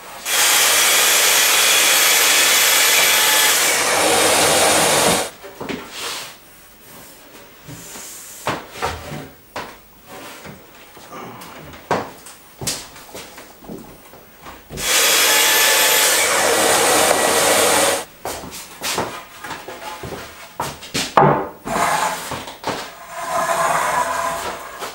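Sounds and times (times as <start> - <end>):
circular saw cutting wood: 0.0 - 5.3, 14.8 - 18.1, 21.7 - 24.9
knocks of board being handled: 20.6 - 22.9.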